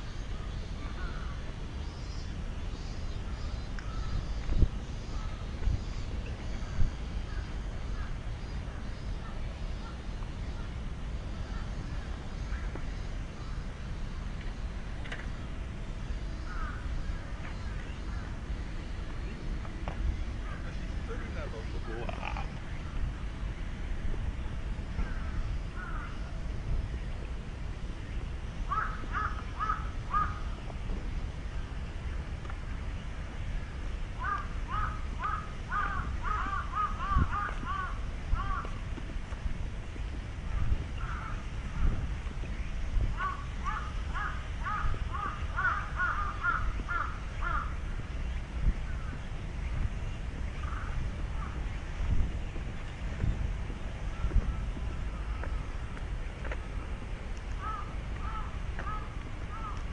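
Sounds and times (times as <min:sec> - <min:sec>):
steady low rumble: 0:00.0 - 0:59.9
crow cawing: 0:00.8 - 0:01.4, 0:16.5 - 0:16.9, 0:25.0 - 0:26.2, 0:28.7 - 0:30.4, 0:34.2 - 0:38.7, 0:43.2 - 0:47.7, 0:57.6 - 0:59.8.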